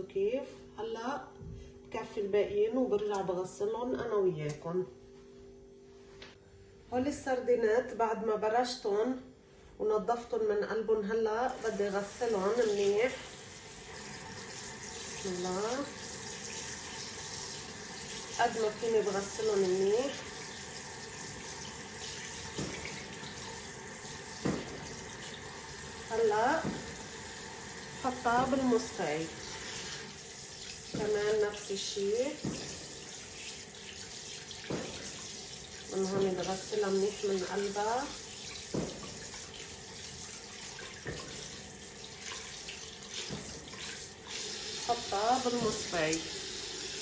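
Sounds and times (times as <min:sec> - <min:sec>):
fish rinsed in water: 0:11.5 - 0:47.0
tap running into a metal sink: 0:19.3 - 0:25.8, 0:26.5 - 0:27.2, 0:32.4 - 0:36.8, 0:37.6 - 0:44.8, 0:45.4 - 0:46.4.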